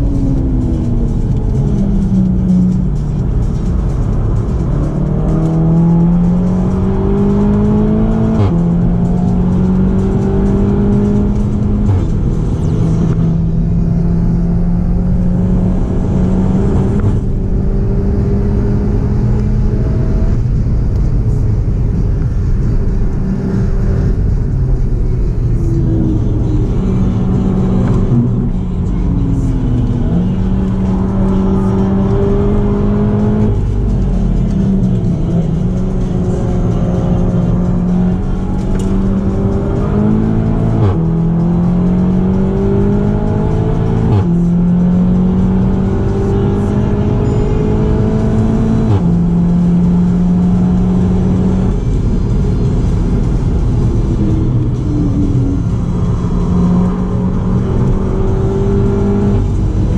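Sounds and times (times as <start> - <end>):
car engine accelerating hard: 0.0 - 59.9
tyre and road noise: 0.0 - 59.9.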